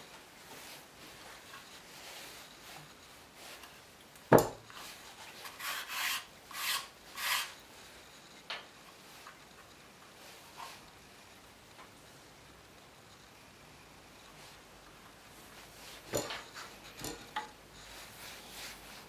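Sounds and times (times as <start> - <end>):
base scraping against bench: 4.8 - 8.3.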